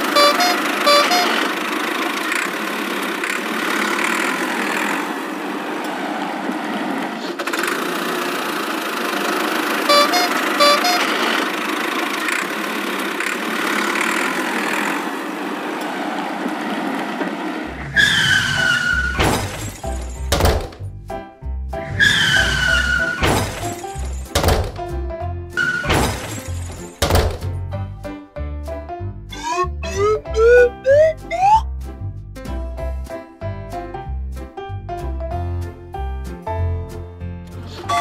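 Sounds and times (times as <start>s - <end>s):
short tones: 0.0s - 1.5s, 9.9s - 11.3s, 29.3s - 31.6s
engine-like sound effect: 0.0s - 19.7s, 29.3s - 31.7s
falling whistle-like tone: 29.3s - 31.6s.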